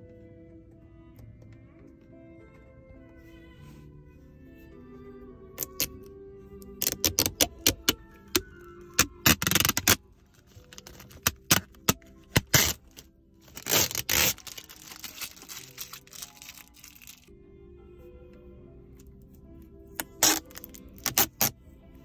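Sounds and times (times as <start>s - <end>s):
background music: 0.0s - 22.0s
plastic film being peeled off: 9.0s - 17.3s, 20.0s - 21.5s.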